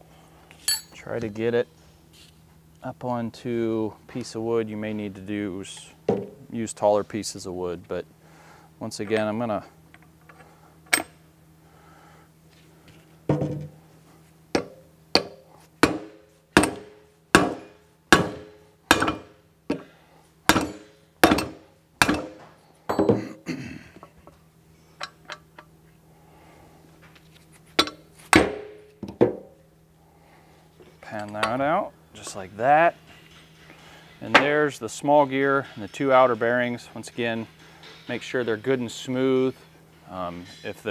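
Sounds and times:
mallet knocking on metal housing: 13.3 - 13.8, 14.6 - 19.3, 20.5 - 23.2.

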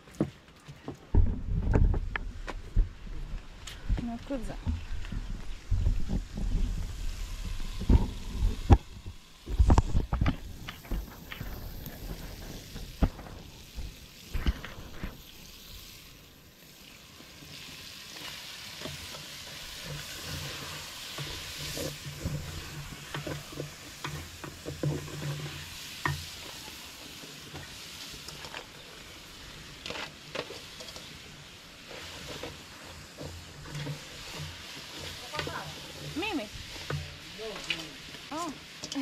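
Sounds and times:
food sizzling in pot: 4.3 - 39.0
stick scraping against pot: 18.1 - 28.8, 29.8 - 39.0.

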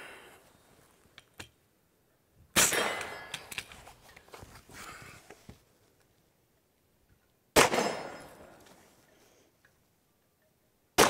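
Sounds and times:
gunshots echoing: 2.6 - 3.4, 7.6 - 8.5.

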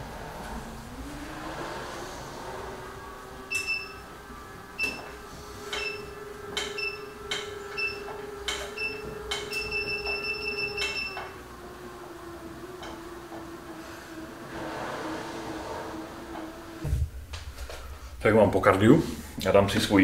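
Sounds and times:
exercise bike humming: 0.0 - 20.0
exercise bike console beeping: 3.4 - 11.7.

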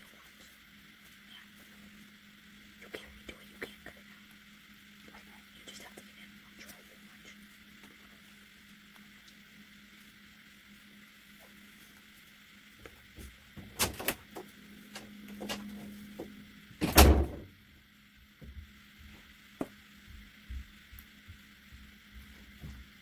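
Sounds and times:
faint low hum: 0.0 - 23.0
loud thump: 16.8 - 17.5.

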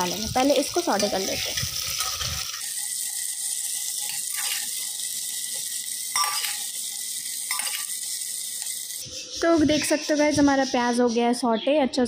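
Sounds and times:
onions sizzling in hot oil: 0.0 - 9.6.

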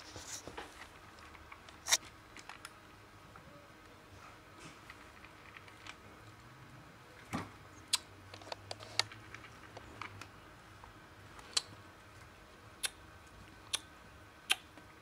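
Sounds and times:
cats crunching dry kibble: 4.7 - 6.5.

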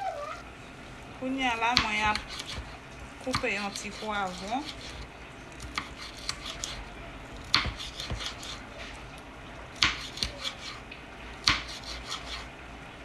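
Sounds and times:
knife striking cutting board: 7.5 - 8.6, 9.8 - 10.6.

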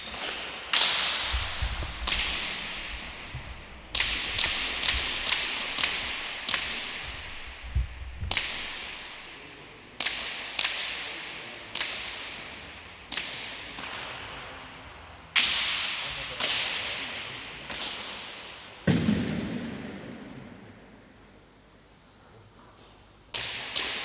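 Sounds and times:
ball cracking off hands and walls: 0.2 - 9.3.

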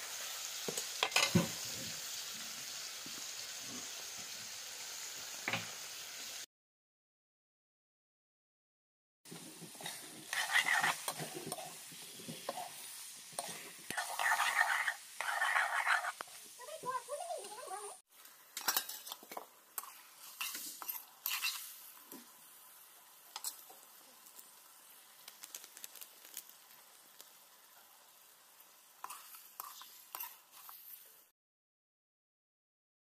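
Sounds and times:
chicken sizzling in pan: 0.0 - 6.5, 9.3 - 31.3
metal ladle scraping pan: 9.4 - 16.3, 18.6 - 21.9, 29.0 - 31.0.

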